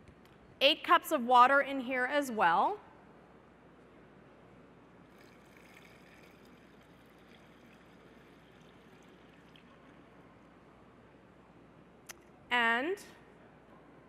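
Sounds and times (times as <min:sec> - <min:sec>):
water pouring into pot: 0:05.1 - 0:10.4.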